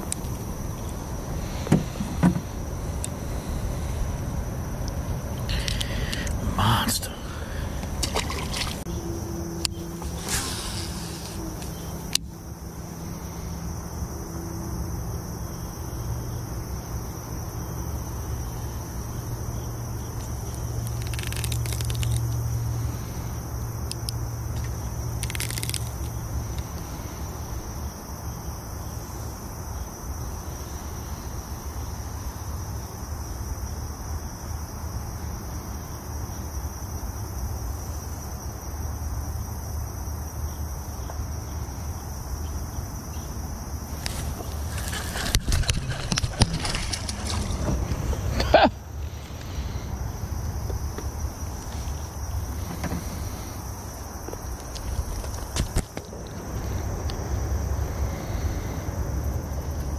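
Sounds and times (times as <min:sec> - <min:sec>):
low background rumble: 0:00.0 - 0:27.9, 0:43.5 - 0:59.9
insects trilling: 0:00.0 - 0:59.9
rustling scrapes: 0:10.0 - 0:11.8, 0:44.0 - 0:48.4.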